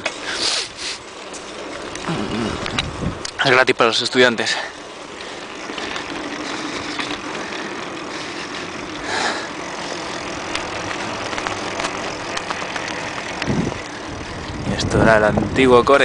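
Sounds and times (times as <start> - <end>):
bicycle rattling: 0.0 - 16.0
wind on microphone: 2.2 - 3.3, 13.4 - 15.7
bumps clicking and knocking: 10.4 - 13.7.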